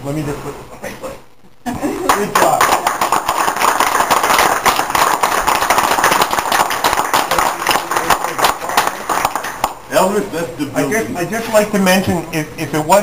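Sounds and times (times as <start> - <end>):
group applauding: 1.8 - 9.9.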